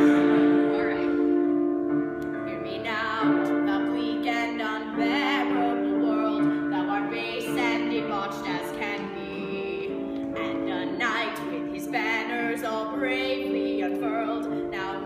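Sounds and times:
woman singing with vibrato: 0:00.0 - 0:01.5
electronic keyboard chords: 0:00.0 - 0:15.0.

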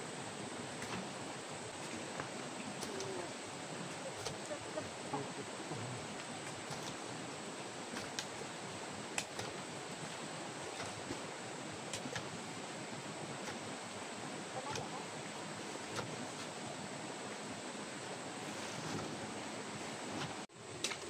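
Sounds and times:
steady rushing hiss: 0:00.0 - 0:20.8.

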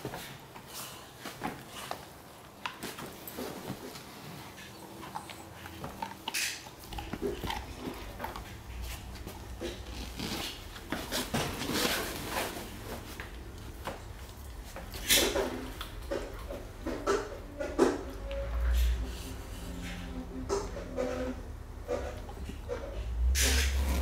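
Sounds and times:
rustling on bedding: 0:00.0 - 0:06.0, 0:06.8 - 0:15.8
dog chewing rawhide: 0:00.2 - 0:18.1.

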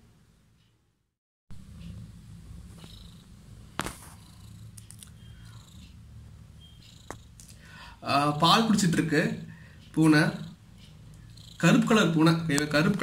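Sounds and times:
cat purring: 0:02.6 - 0:07.4, 0:10.0 - 0:13.0.

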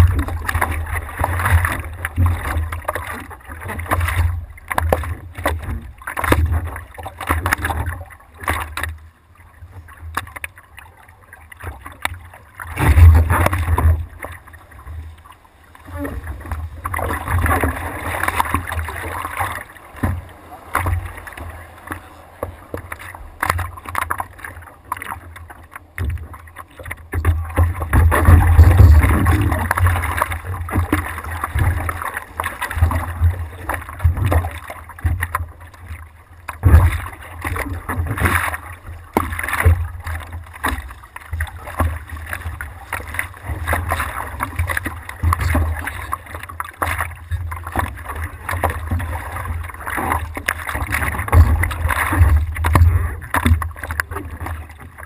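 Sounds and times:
water splashing against surfboard: 0:00.0 - 0:55.0.

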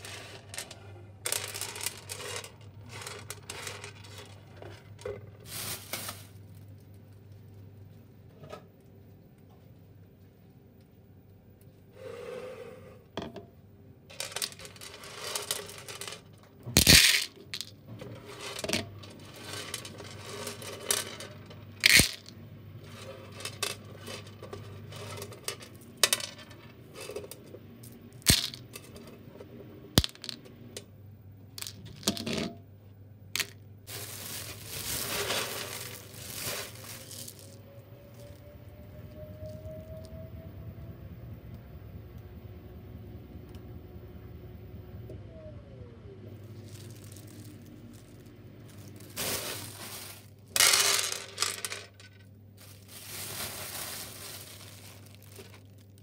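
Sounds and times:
beans clicking on plastic: 0:00.0 - 0:05.0, 0:14.1 - 0:17.7, 0:18.6 - 0:22.3, 0:28.2 - 0:28.7, 0:30.0 - 0:30.9, 0:31.6 - 0:32.3, 0:33.4 - 0:33.6
beans pouring with rattle: 0:00.0 - 0:06.4, 0:14.1 - 0:26.3, 0:33.4 - 0:37.6, 0:46.5 - 0:56.0.

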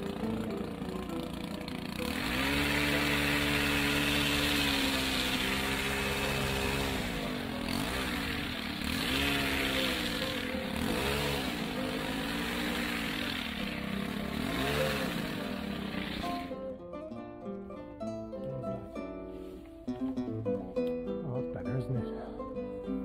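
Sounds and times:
hedge trimmer engine revving: 0:00.0 - 0:16.6.

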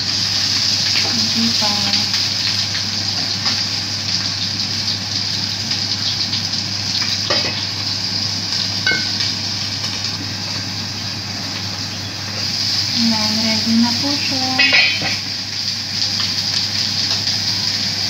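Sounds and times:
fish sizzling in oil: 0:00.0 - 0:18.0
glass lid ringing: 0:08.9 - 0:09.2
spatula clattering on pan: 0:14.6 - 0:15.2.

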